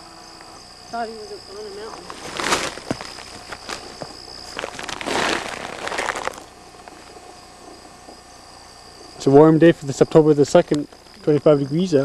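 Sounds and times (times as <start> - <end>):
dry leaves rustling and crackling: 1.8 - 7.2.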